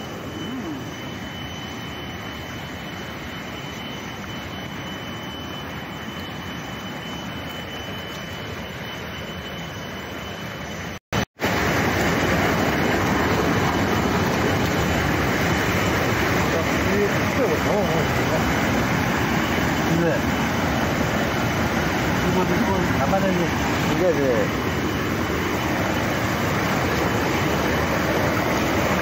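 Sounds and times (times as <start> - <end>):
faint thin high tone: 0.0 - 11.0
steady rushing noise: 11.4 - 29.0.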